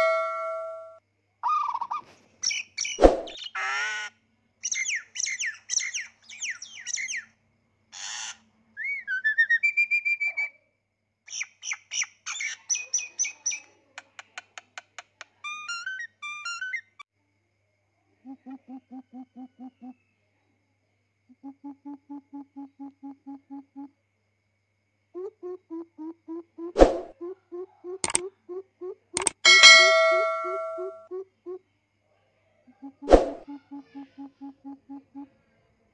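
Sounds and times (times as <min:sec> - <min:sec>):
whistle glides: 0:00.0 - 0:01.0, 0:29.5 - 0:31.0
bird chirp sound effects: 0:00.0 - 0:03.6, 0:29.2 - 0:31.1
sharp thud: 0:03.0 - 0:03.4, 0:26.8 - 0:27.1, 0:33.1 - 0:33.4.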